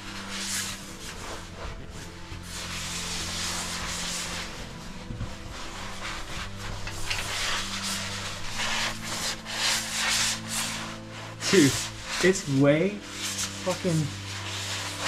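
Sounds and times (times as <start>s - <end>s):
clothing scraping against rock: 0.0s - 15.0s.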